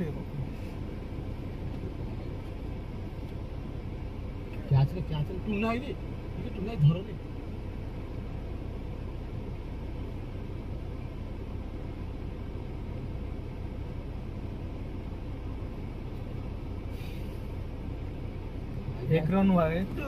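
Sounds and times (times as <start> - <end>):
steady low rumble: 0.0 - 20.0
faint hiss: 16.8 - 17.8.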